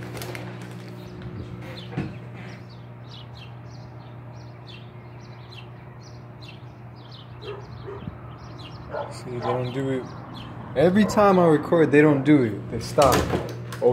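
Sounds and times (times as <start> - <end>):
steady low hum: 0.0 - 13.9
birds chirping: 0.4 - 13.9.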